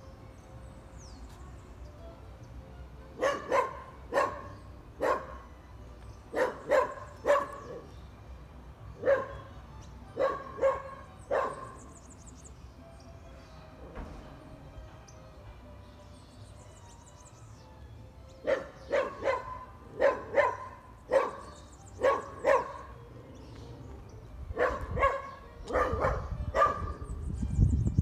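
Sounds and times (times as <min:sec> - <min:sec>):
dog barking: 0:03.2 - 0:05.5, 0:06.3 - 0:07.9, 0:09.0 - 0:09.5, 0:10.2 - 0:11.8, 0:18.4 - 0:23.0, 0:24.5 - 0:27.1.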